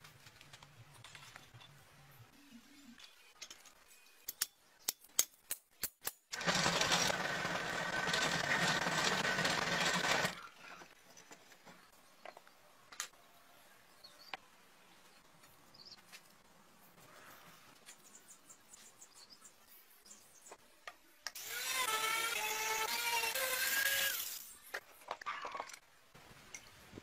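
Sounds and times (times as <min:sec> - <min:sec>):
drill press humming and whining: 0:06.4 - 0:10.4.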